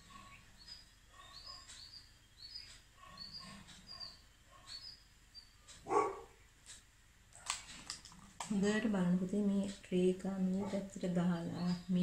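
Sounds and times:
animal chirping: 0.0s - 6.3s
dog barking: 3.0s - 4.8s, 5.8s - 6.4s.

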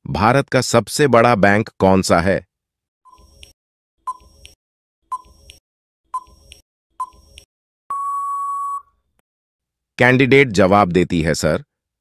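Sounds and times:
long steady beep: 7.9s - 9.0s.

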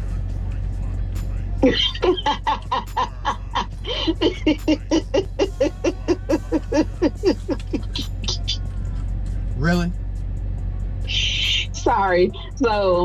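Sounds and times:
person laughing hard: 1.6s - 8.2s.

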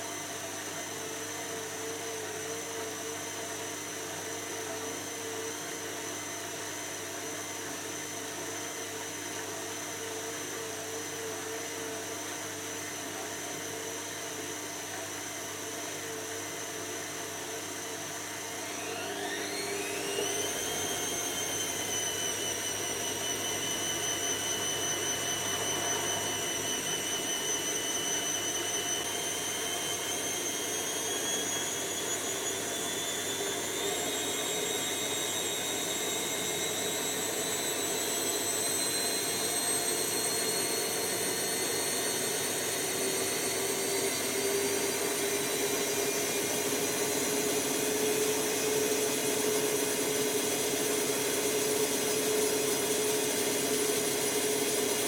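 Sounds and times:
washing machine motor whine: 0.0s - 55.0s.

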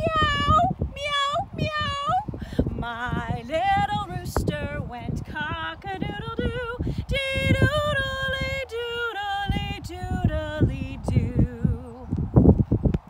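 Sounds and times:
woman singing unaccompanied: 0.0s - 12.2s
wind buffeting microphone: 0.0s - 13.0s.

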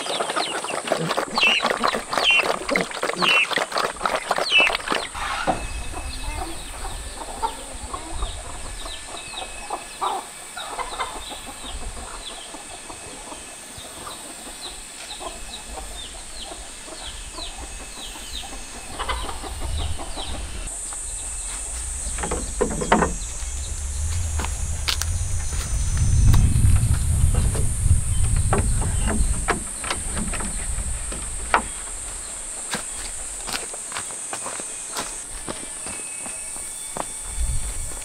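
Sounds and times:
chickens clucking: 0.0s - 24.3s
high-pitched drone: 17.4s - 29.1s.

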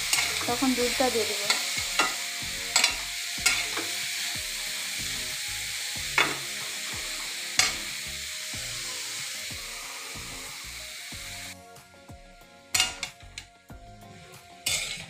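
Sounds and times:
carrots sizzling in hot ghee: 0.0s - 11.6s, 12.5s - 15.0s
metal spatula clicking on pan: 2.8s - 3.9s, 7.6s - 7.8s.

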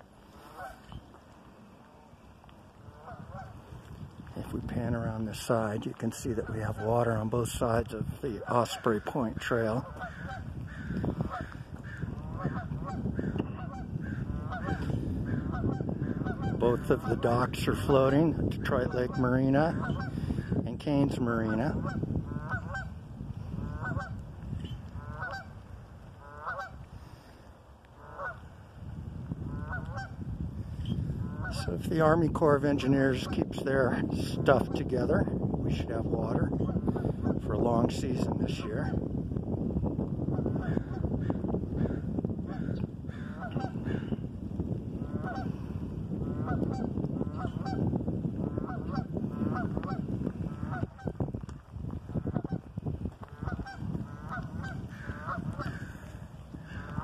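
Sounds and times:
geese honking: 0.3s - 1.0s, 2.8s - 3.7s, 8.3s - 17.5s, 18.8s - 20.2s, 21.3s - 22.9s, 23.6s - 25.6s, 26.2s - 26.9s, 27.9s - 28.5s, 29.5s - 30.2s, 31.2s - 31.8s, 41.8s - 44.1s, 45.0s - 45.6s, 46.2s - 51.2s, 52.1s - 57.0s.

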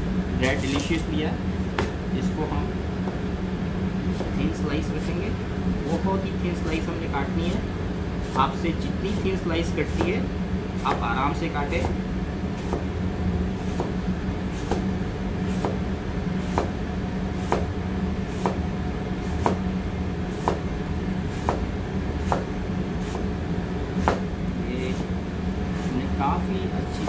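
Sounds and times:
steady low hum: 0.0s - 27.0s
knife slicing apple: 0.4s - 1.0s, 4.1s - 5.2s, 10.8s - 12.0s, 12.6s - 12.9s, 13.6s - 14.9s, 15.5s - 15.8s, 16.4s - 16.8s, 17.4s - 17.7s, 18.3s - 18.6s, 19.2s - 19.7s, 20.3s - 20.7s, 21.3s - 23.3s, 23.9s - 25.1s
blade knocking cutting board: 0.6s - 1.0s, 1.8s - 2.0s, 9.9s - 10.2s, 10.8s - 12.0s, 14.6s - 14.9s, 15.5s - 15.8s, 16.4s - 16.8s, 17.4s - 17.7s, 18.3s - 18.6s, 19.3s - 19.7s, 20.4s - 20.7s, 21.3s - 22.5s, 24.0s - 24.3s.

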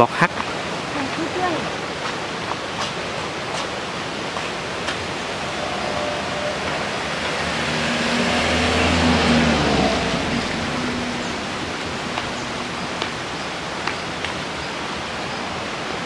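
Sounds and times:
running water rushing: 0.0s - 16.0s
car driving past on wet road: 3.9s - 13.7s.

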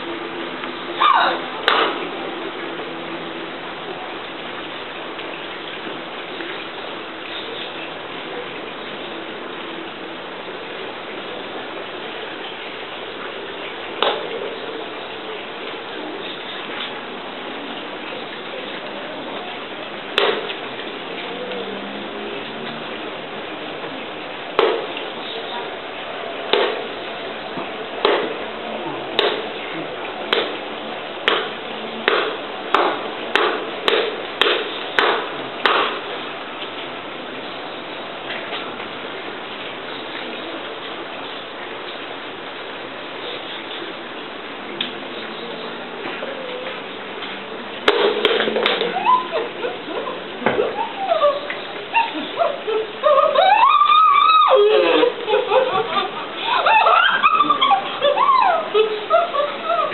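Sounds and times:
steady background hiss: 0.0s - 59.9s.

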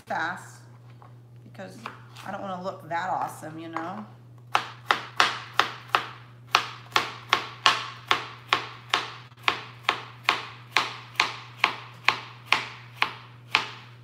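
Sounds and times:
knife chopping carrots on board: 4.5s - 13.9s.

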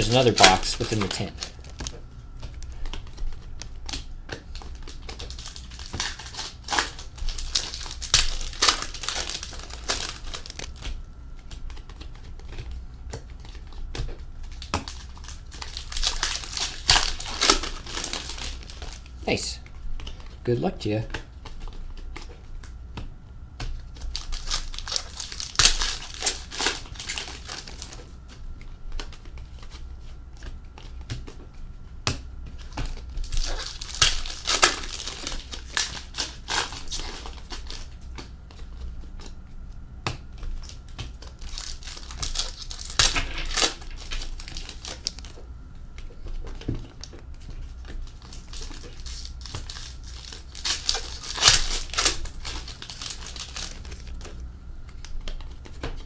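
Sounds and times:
card pack wrappers tearing: 0.0s - 2.0s, 2.8s - 10.9s, 14.5s - 19.4s, 24.0s - 28.1s, 32.6s - 38.0s, 40.6s - 45.4s, 47.8s - 54.4s.

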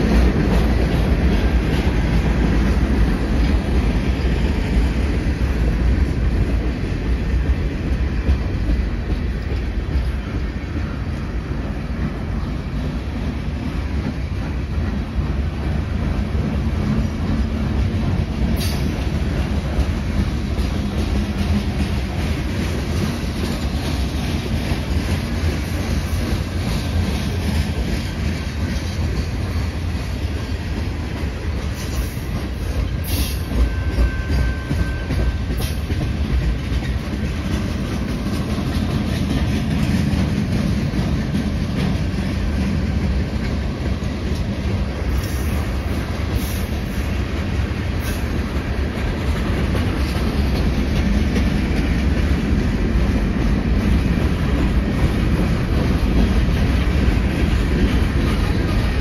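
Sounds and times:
freight train rumbling past: 0.0s - 59.0s
wheels clacking over rail joints: 0.0s - 59.0s.

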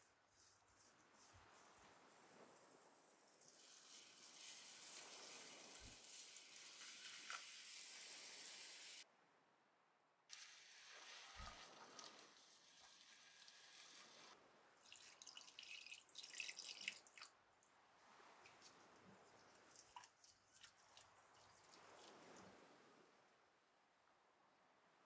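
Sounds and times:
milk pouring into hot pan: 3.4s - 9.0s, 10.3s - 17.3s.

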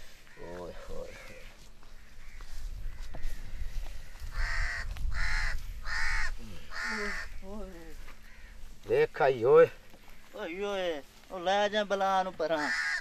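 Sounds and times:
crow cawing: 0.0s - 8.9s, 9.9s - 10.6s, 12.4s - 13.0s.

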